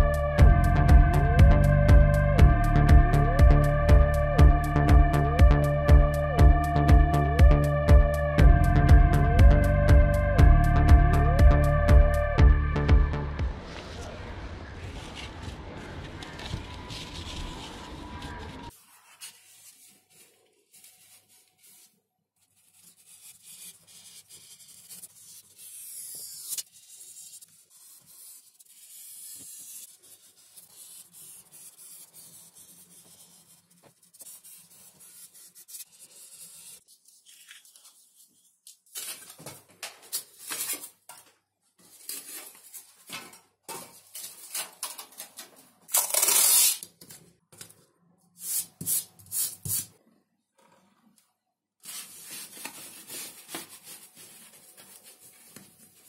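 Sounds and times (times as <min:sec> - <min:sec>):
paper rubbing and shifting: 0:14.8 - 0:22.0, 0:51.8 - 0:56.0
pen scratching on paper: 0:22.5 - 0:36.8
masking tape ripping: 0:45.9 - 0:47.0.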